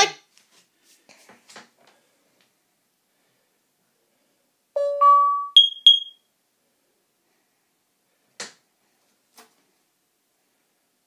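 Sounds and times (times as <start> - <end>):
high pings: 4.8 - 6.2
smoke alarm chiming: 4.8 - 6.2.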